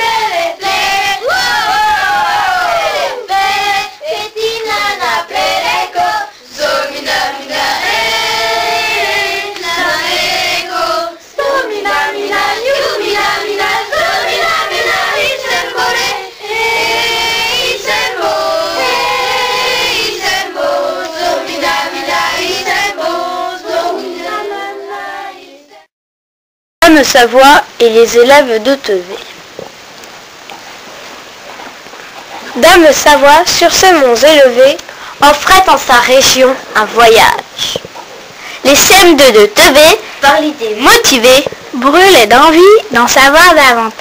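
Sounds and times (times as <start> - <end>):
children singing: 0.0 - 25.9.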